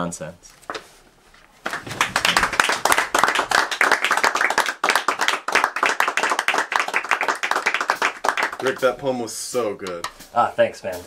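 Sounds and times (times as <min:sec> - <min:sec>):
audience clapping: 0:01.6 - 0:09.1.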